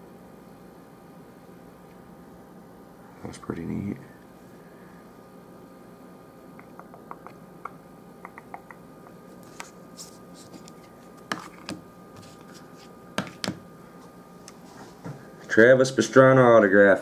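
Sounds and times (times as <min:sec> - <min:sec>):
sharp knocks on wooden table: 0:13.2 - 0:13.6.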